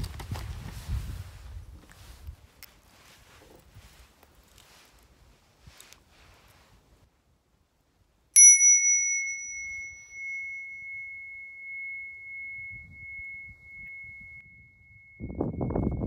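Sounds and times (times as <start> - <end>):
brass bowl bell ringing: 8.4 - 16.0.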